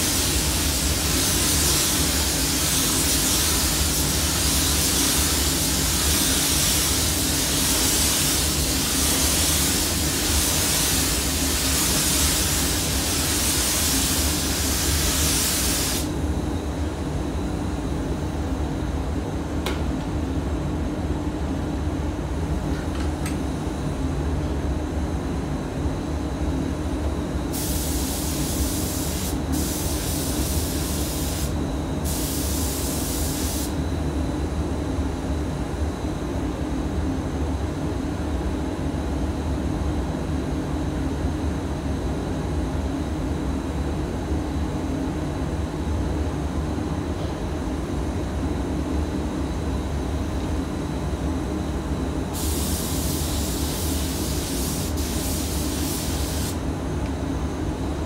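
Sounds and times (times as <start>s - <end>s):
spray gun hissing: 0.0s - 16.1s, 27.5s - 33.8s, 52.4s - 56.6s
ventilation drone: 0.0s - 39.5s, 42.7s - 58.0s.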